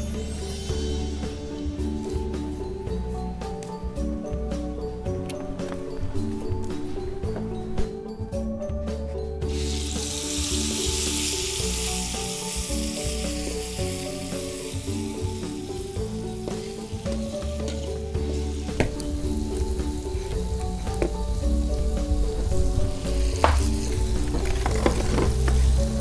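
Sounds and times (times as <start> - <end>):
food sizzling in hot oil: 9.5 - 20.3.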